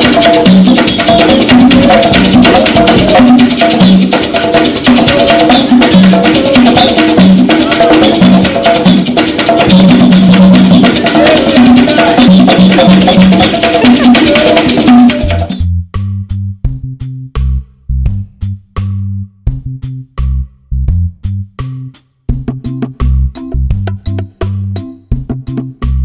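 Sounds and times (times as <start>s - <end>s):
hand drums beating fast rhythm: 0.0s - 15.6s, 22.3s - 26.0s
different music: 0.0s - 26.0s.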